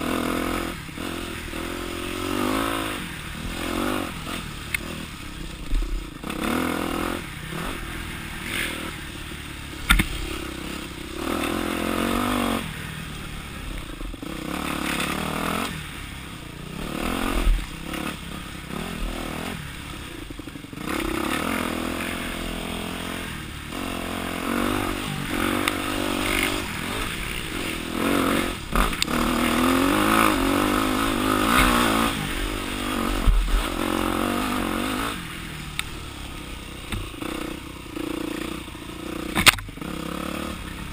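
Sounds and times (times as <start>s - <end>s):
dirt bike engine revving: 0.0s - 40.9s
bike knocks and clatters: 9.8s - 10.3s.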